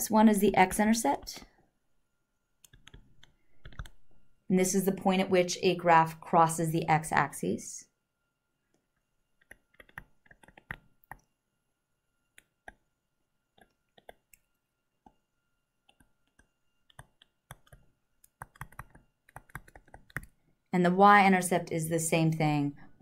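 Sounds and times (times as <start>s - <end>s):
stylus tapping on tablet screen: 9.4s - 11.3s, 13.5s - 14.4s, 15.8s - 20.4s.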